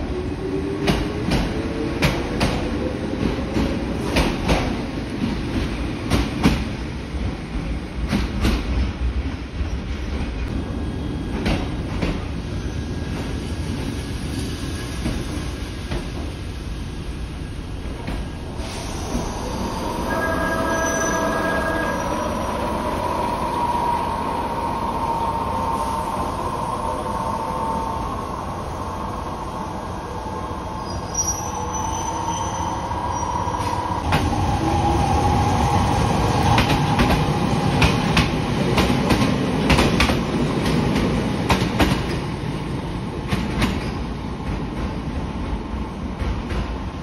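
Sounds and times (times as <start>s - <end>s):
electric train whine: 16.6s - 39.2s.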